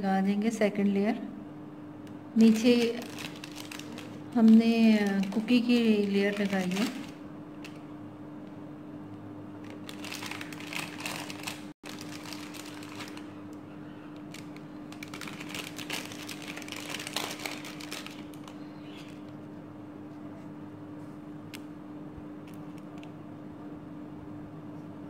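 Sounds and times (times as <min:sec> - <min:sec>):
steady low hum: 0:00.0 - 0:25.0
foil crinkling: 0:02.4 - 0:07.8, 0:09.6 - 0:13.4, 0:14.2 - 0:19.3.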